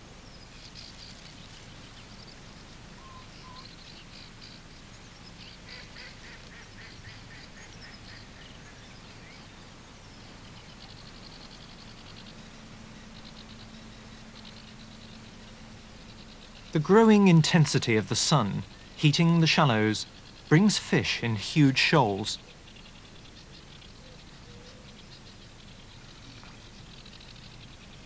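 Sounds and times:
birds singing: 0.0 - 28.0.

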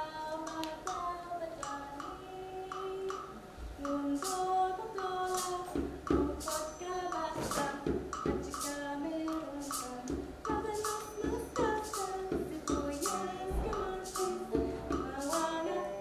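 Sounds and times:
person singing: 0.0 - 16.0
steady percussive beat: 0.6 - 16.0
banjo playing: 11.5 - 16.0.

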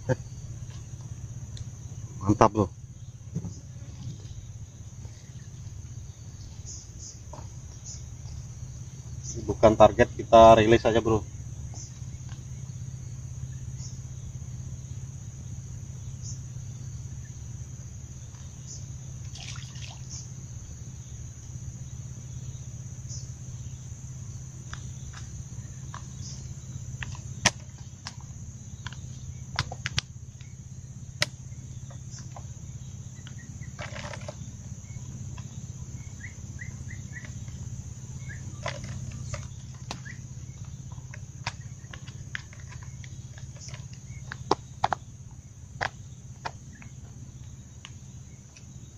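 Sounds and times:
high-pitched insect drone: 0.0 - 48.9
low steady hum: 0.0 - 48.9
fishing tackle clicks and knocks: 33.8 - 34.4, 38.6 - 40.1, 41.0 - 45.0.

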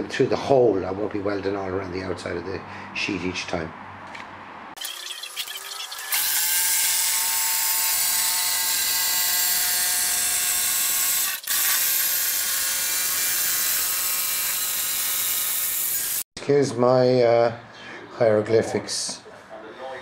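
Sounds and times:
jigsaw cutting steel: 4.8 - 16.3.

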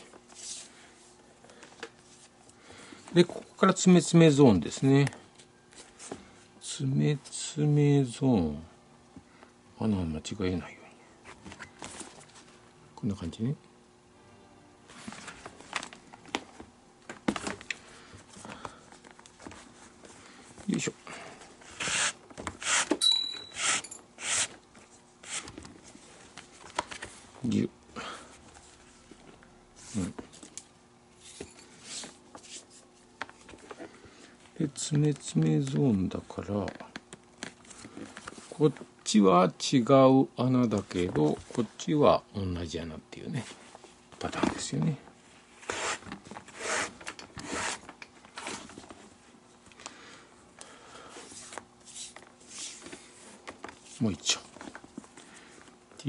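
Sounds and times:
high ringing tone: 23.0 - 24.0.

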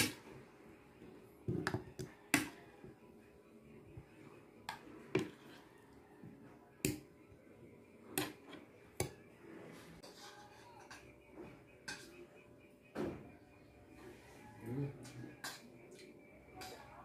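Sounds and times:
spoon clinking on ceramic plates: 10.0 - 12.4, 15.0 - 17.0.

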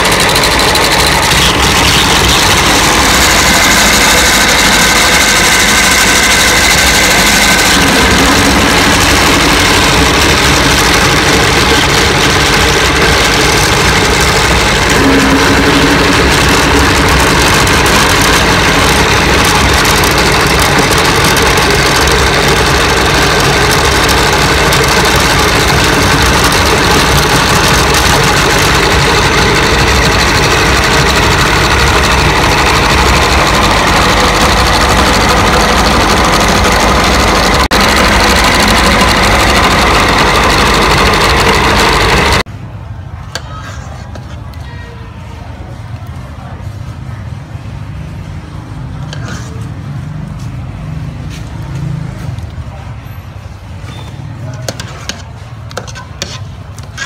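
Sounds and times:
meat grinder running: 0.0 - 42.5.

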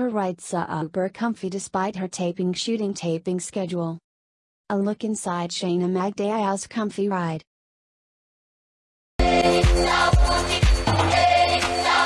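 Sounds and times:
music with thumping beat: 9.2 - 12.0.

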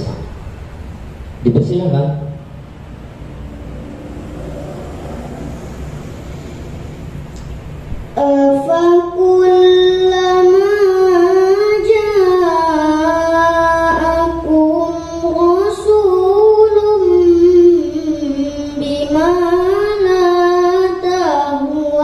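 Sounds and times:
girl reciting melodically: 8.1 - 22.0.

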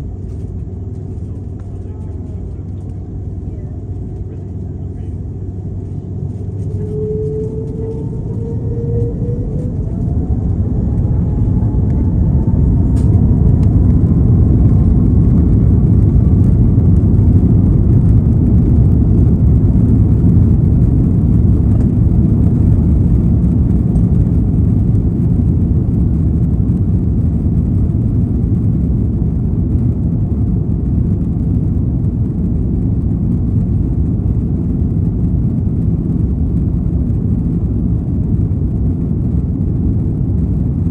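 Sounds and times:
jet engines spooling up: 1.4 - 25.6.

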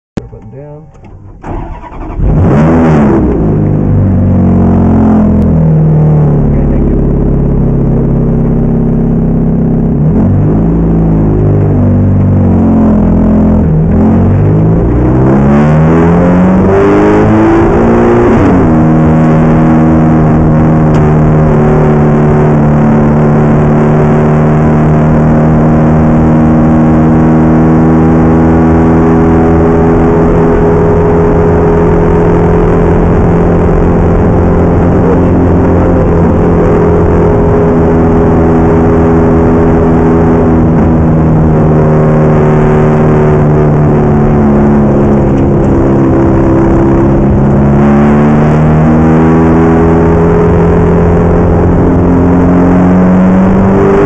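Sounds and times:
race car engine accelerating: 0.2 - 54.0.

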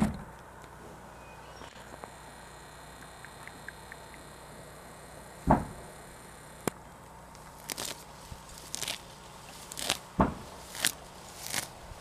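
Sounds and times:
heavy thump: 5.4 - 5.8, 10.2 - 10.6
footsteps crunching through straw: 7.4 - 12.0.

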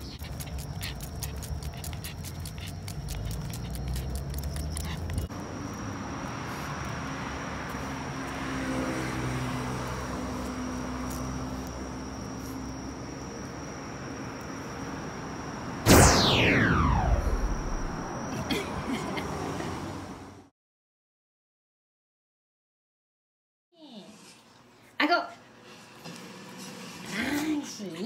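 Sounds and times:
dog panting fast: 0.0 - 5.3, 25.4 - 28.0
dog snuffling and grunting: 0.0 - 5.3
steady high hum: 15.9 - 18.6.

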